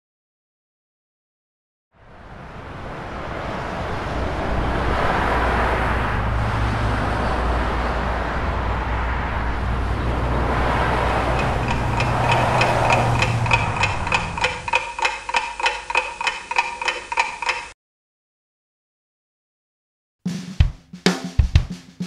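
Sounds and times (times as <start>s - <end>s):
freeway traffic noise: 2.0s - 17.8s
watch ticking: 11.3s - 17.8s.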